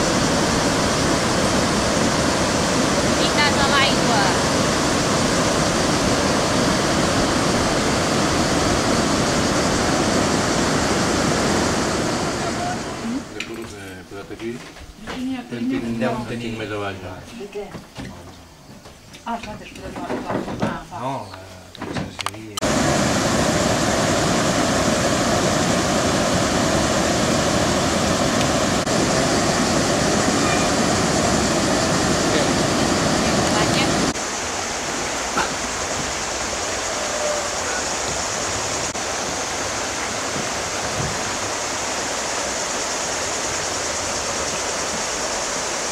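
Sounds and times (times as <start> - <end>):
river water rushing over weir: 22.6 - 45.9.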